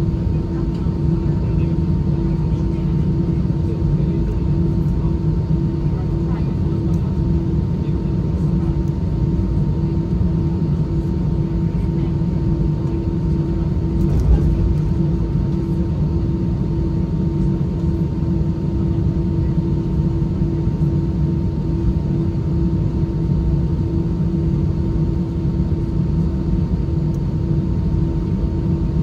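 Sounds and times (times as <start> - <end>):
aircraft cabin low rumble: 0.0 - 29.0
constant droning hum: 0.0 - 29.0.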